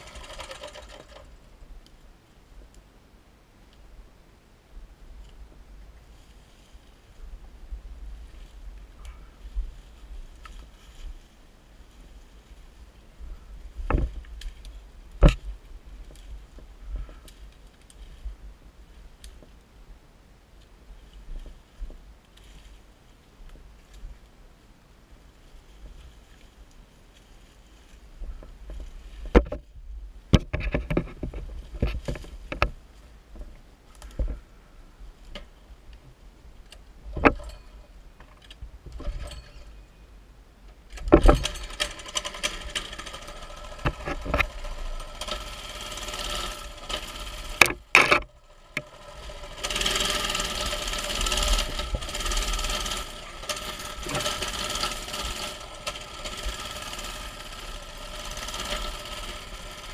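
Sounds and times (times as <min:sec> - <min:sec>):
small engine running: 0:00.0 - 0:01.4, 0:41.2 - 0:59.9.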